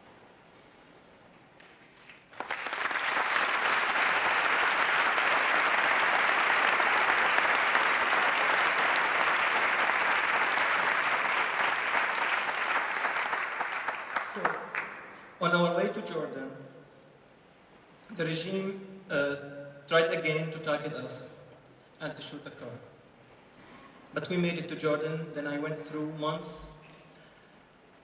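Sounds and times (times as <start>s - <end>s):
audience applauding: 1.6s - 15.3s.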